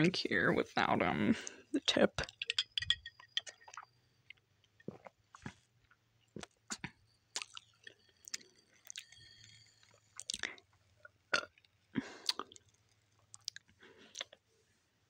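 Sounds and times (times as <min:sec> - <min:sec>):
wet mouth clicks: 0:06.4 - 0:09.2, 0:12.2 - 0:12.6, 0:13.3 - 0:14.4
swallowing: 0:11.3 - 0:14.4.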